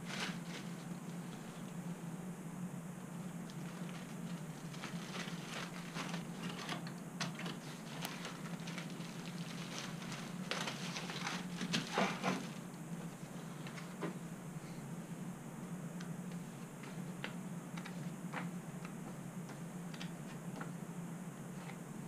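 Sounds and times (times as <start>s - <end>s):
plastic and paper crinkling: 0.0s - 1.7s, 3.4s - 12.6s
steady low hum: 0.0s - 22.0s.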